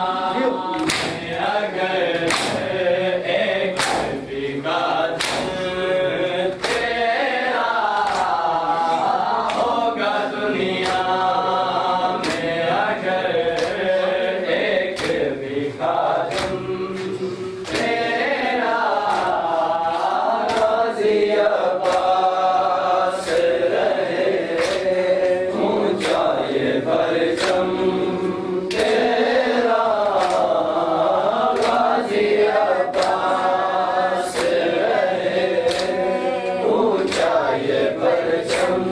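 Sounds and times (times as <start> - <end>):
men chanting in unison: 0.0 - 38.9
hands slapping chests: 0.6 - 2.8, 3.8 - 4.3, 5.1 - 5.6, 6.5 - 7.0, 7.8 - 8.5, 10.7 - 11.2, 12.2 - 12.6, 13.5 - 13.9, 14.9 - 15.3, 16.2 - 18.0, 19.0 - 20.8, 21.7 - 22.3, 24.4 - 26.5, 27.3 - 27.8, 28.6 - 29.2, 30.0 - 30.6, 31.3 - 32.0, 32.9 - 33.3, 34.3 - 34.8, 35.6 - 38.9.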